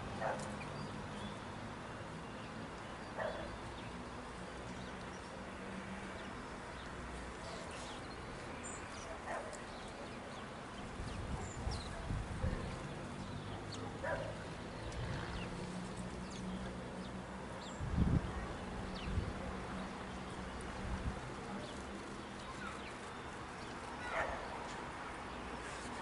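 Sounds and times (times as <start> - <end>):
dog barking: 0.2 - 0.5, 3.2 - 3.5, 9.2 - 9.5, 14.0 - 14.4, 24.0 - 24.4
small birds chirping: 6.1 - 26.0.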